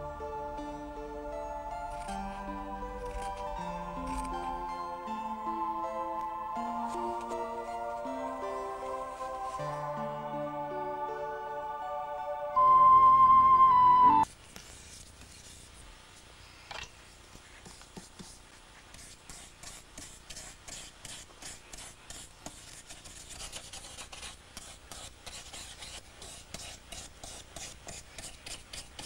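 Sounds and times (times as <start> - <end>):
brush rubbing strokes: 6.0 - 11.0.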